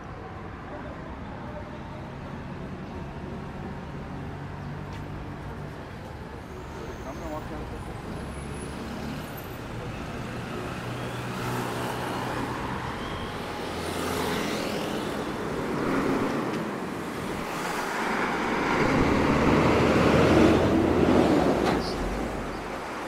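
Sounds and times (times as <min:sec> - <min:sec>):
cars driving past: 0:06.3 - 0:23.0.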